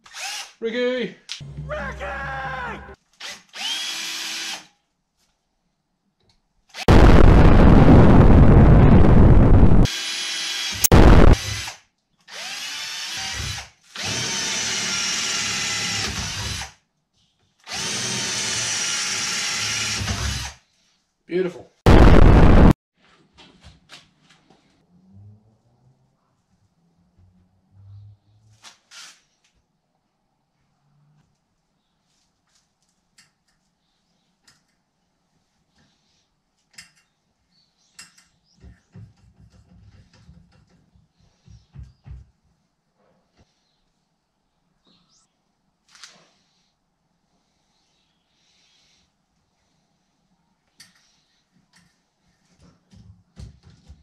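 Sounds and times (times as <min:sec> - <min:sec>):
cordless drill motor whine: 0:03.6 - 0:04.6
explosion sound effect: 0:06.9 - 0:09.9, 0:10.8 - 0:11.4, 0:21.9 - 0:22.8.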